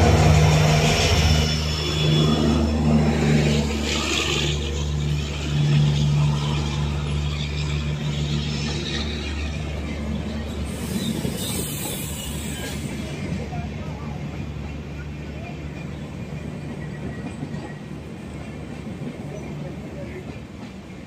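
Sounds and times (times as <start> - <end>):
locomotive engine droning: 0.0 - 21.0
train coaches rumbling past: 0.0 - 21.0.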